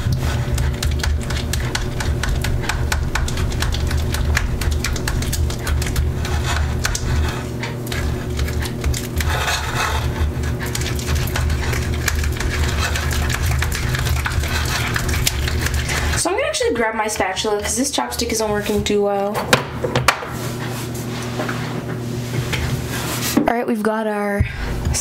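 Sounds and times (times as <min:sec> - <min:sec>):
chopstick stirring slime: 0:00.0 - 0:16.5
steady low hum: 0:00.0 - 0:25.0
sticky clicks and squelches: 0:00.5 - 0:07.1.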